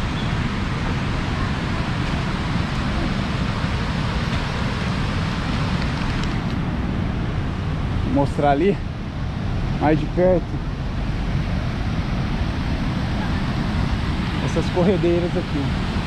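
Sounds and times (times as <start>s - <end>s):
river rapids rushing: 0.0s - 7.6s, 9.1s - 16.0s.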